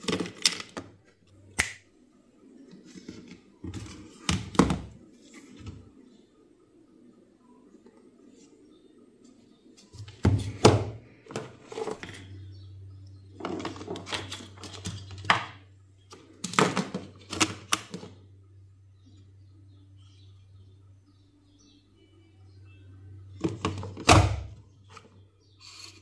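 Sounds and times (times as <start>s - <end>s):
steady low hum: 5.8s - 26.0s.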